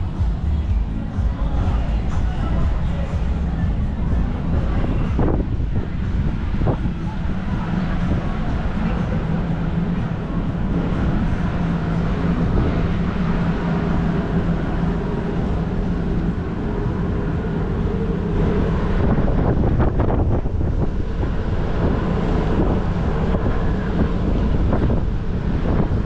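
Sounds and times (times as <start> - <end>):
steady low hum: 0.0 - 26.0
wind buffeting microphone: 0.0 - 26.0.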